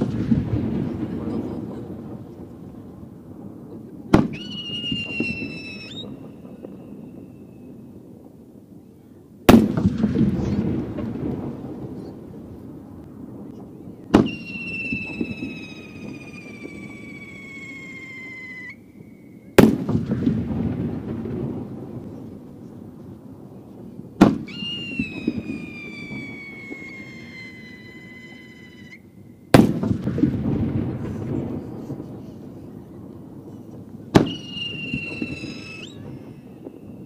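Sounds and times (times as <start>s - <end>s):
firework launch bang: 0.0s - 2.9s, 9.5s - 12.2s, 14.1s - 17.8s, 19.6s - 22.4s, 24.2s - 27.6s, 29.5s - 32.5s, 33.6s - 36.8s
firework burst with rolling echo: 0.0s - 37.0s
falling whistle of rising shell: 4.2s - 7.7s, 14.2s - 19.6s, 24.3s - 29.2s, 34.2s - 37.0s.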